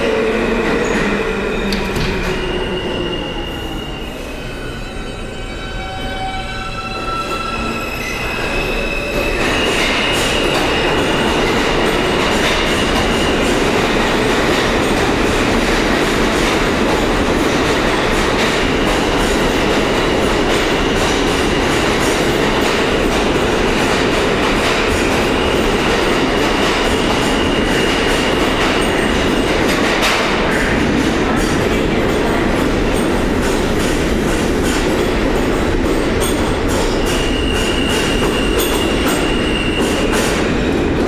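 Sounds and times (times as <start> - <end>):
steel wheels rumbling on rail: 0.0 - 41.0
clickety-clack over rail joints: 9.8 - 41.0.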